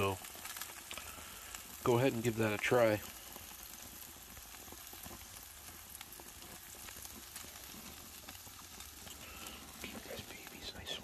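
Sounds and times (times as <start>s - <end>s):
burger patties sizzling on grill: 0.0s - 11.0s.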